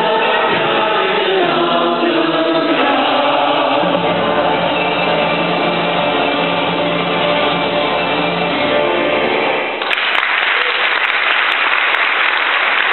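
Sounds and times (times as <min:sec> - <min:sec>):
choir and band holding chord: 0:00.0 - 0:09.8
congregation applauding: 0:09.8 - 0:12.9.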